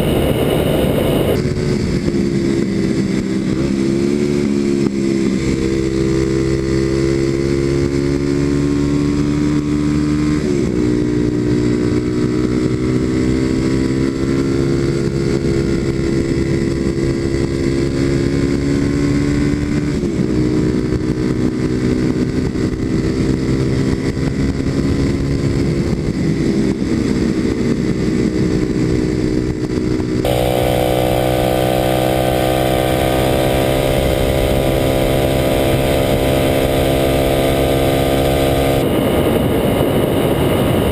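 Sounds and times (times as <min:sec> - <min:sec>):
motorcycle engine running: 0:00.0 - 0:40.9
gear change: 0:30.2 - 0:40.9.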